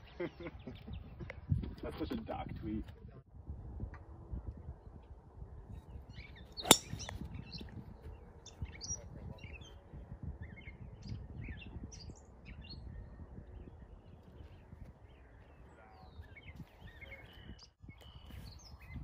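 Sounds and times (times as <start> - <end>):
birds chirping: 0.0 - 2.4, 5.9 - 19.0
golf club striking ball: 6.6 - 7.2.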